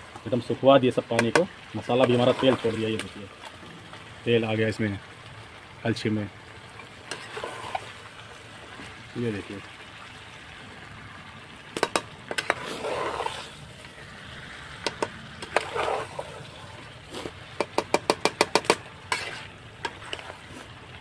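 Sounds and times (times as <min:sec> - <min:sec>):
food frying in a pan: 0:00.0 - 0:21.0
metal spoon scraping a pan: 0:07.0 - 0:08.0, 0:11.8 - 0:13.6, 0:14.9 - 0:20.8.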